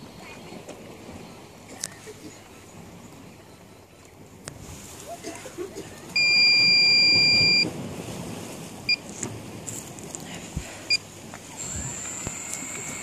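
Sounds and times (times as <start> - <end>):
electronic buzzer beeps: 6.2 - 7.6.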